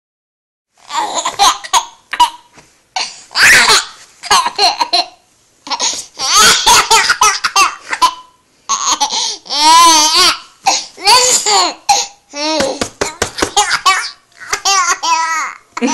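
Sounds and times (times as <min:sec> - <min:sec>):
baby squealing: 0:03.3 - 0:04.0, 0:06.2 - 0:07.6
baby giggling: 0:05.7 - 0:10.4, 0:12.4 - 0:15.9.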